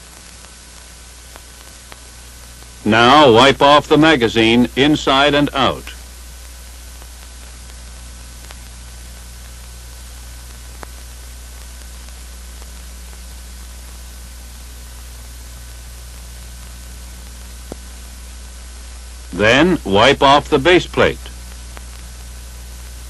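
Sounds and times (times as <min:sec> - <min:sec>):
film soundtrack hiss and hum: 0:00.0 - 0:23.0
narration: 0:02.8 - 0:06.0, 0:19.3 - 0:21.4.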